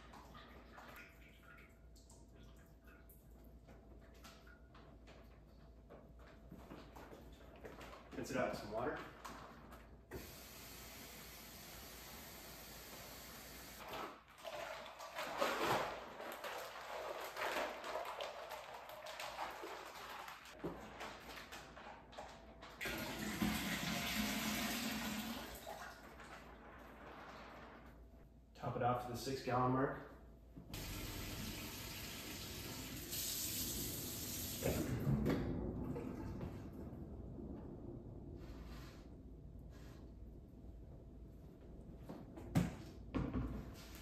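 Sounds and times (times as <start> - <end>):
water sloshing in plastic bag: 13.8 - 22.8
faucet running: 22.8 - 25.7, 30.8 - 34.8.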